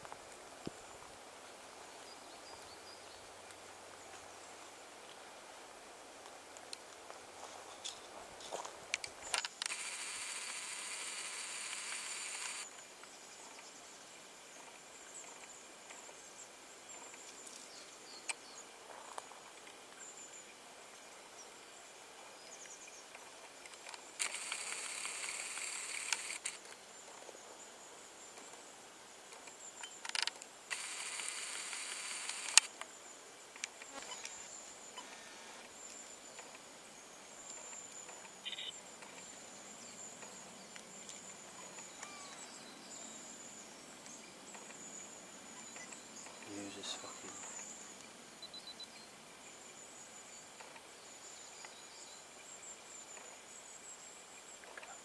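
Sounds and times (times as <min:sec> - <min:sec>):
faint high-pitched whine: 0:00.0 - 0:55.0
camcorder zoom motor whirring: 0:09.6 - 0:12.7, 0:24.2 - 0:26.6, 0:30.7 - 0:32.7
sharp click: 0:23.8 - 0:26.6, 0:30.0 - 0:32.8.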